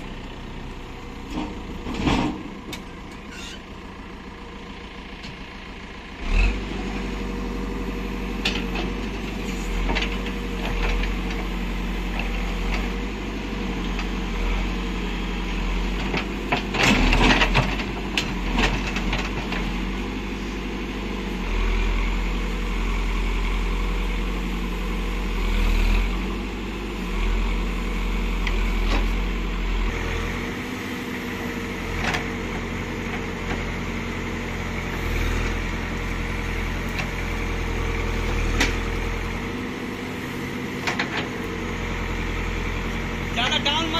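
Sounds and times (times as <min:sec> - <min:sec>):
diesel engine running: 0:00.0 - 0:43.9
metal clanks and knocks: 0:01.2 - 0:03.6.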